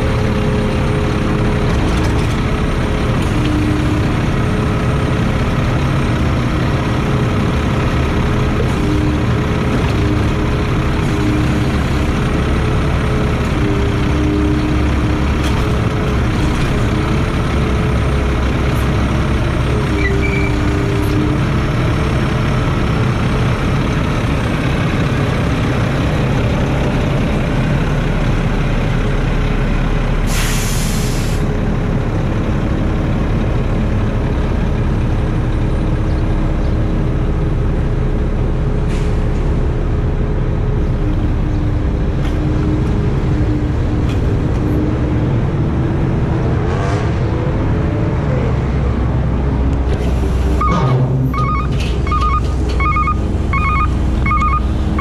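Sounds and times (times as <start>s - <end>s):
diesel engine running: 0.0s - 55.0s
compressed air hiss: 30.3s - 31.4s.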